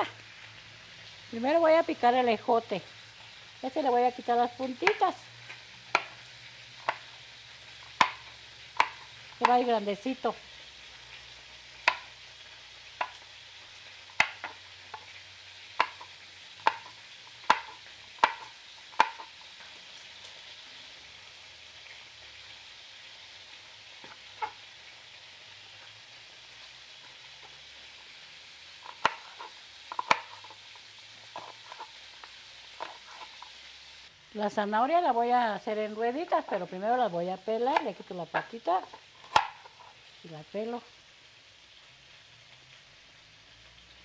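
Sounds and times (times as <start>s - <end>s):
chicken sizzling in hot oil: 0.0s - 44.0s
knife chopping on wooden board: 5.9s - 6.2s, 7.9s - 9.6s, 11.8s - 12.1s, 14.2s - 14.6s, 15.8s - 19.3s, 39.3s - 39.6s.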